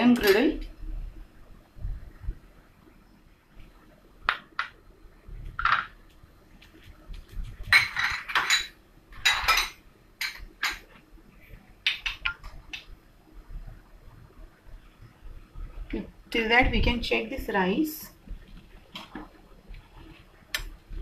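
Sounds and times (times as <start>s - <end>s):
dishes and utensils clattering: 7.6s - 10.9s.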